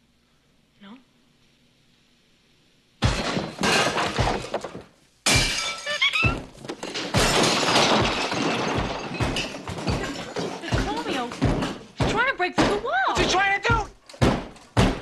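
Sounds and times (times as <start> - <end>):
heavy crashing and thudding: 3.0 - 13.6.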